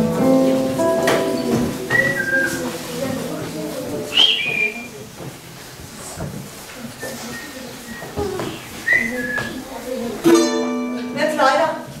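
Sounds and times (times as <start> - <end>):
held musical notes: 0.0 - 5.2, 7.1 - 11.9
high whistled notes: 1.9 - 2.7, 4.1 - 5.0, 8.8 - 9.6.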